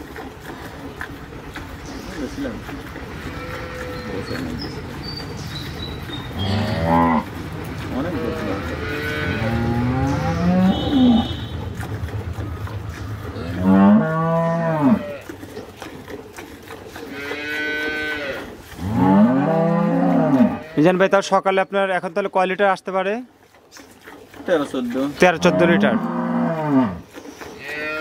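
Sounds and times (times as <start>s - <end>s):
cows mooing: 2.1s - 15.6s, 16.9s - 21.3s, 24.5s - 28.0s.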